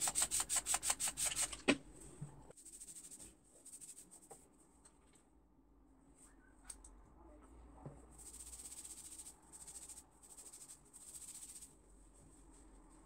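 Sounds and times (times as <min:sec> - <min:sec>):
fingers rubbing through hair: 0:02.6 - 0:04.3, 0:08.2 - 0:11.7.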